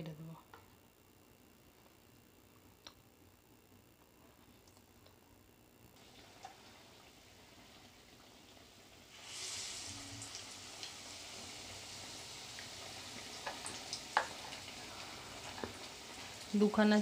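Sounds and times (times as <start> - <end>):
food sizzling in hot oil: 6.0 - 17.0.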